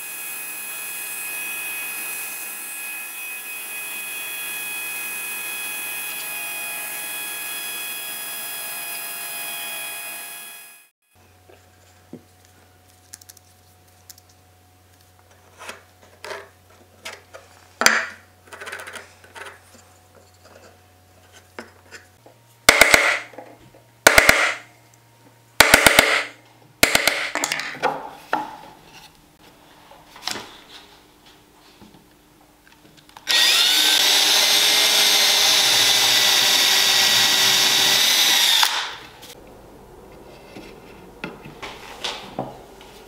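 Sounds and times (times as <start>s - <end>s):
chisel strikes cutting wood: 22.7s - 23.4s, 24.1s - 24.7s, 25.6s - 27.4s.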